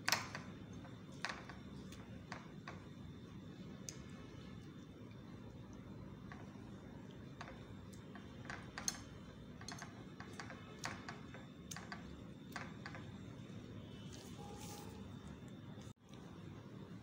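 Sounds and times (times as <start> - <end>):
wooden skewers clicking on plate: 6.2 - 13.2.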